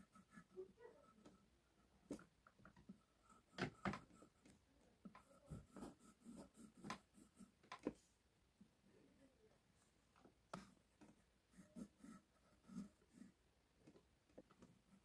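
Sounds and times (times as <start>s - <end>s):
pencil scratching on paper: 0.0s - 7.6s, 10.6s - 13.4s.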